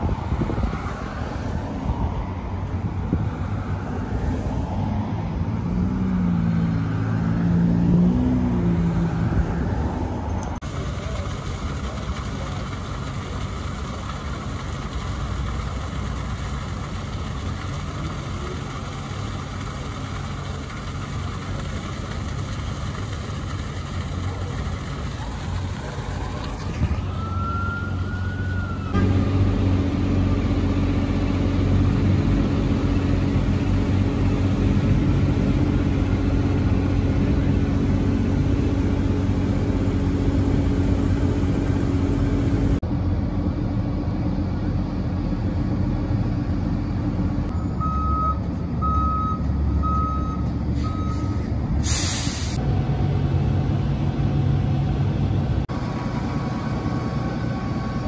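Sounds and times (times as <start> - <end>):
truck engines humming: 0.0 - 58.0
siren-like pitch glide: 26.9 - 29.1
backup alarm beeps: 47.5 - 51.4
air brakes hissing: 50.8 - 52.6.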